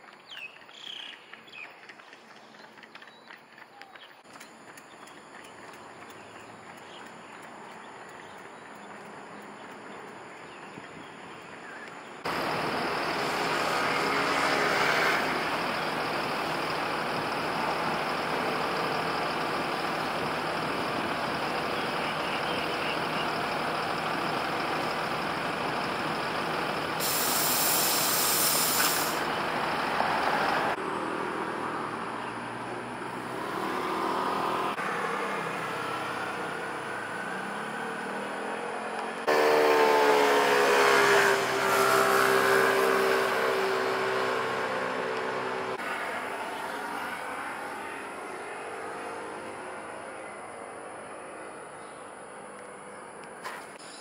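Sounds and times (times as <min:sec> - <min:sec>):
road traffic: 0:00.0 - 0:54.0
bus air brakes hissing: 0:26.9 - 0:29.4.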